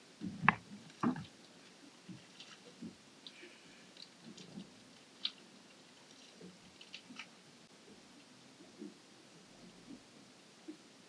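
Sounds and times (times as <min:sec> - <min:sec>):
faint clicks: 0:00.4 - 0:07.4.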